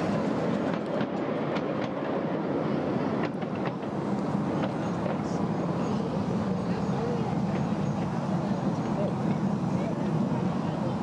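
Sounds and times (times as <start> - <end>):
rail joint clicks: 0.0 - 2.3, 3.1 - 5.3
train wheels rumbling on rails: 0.0 - 11.0.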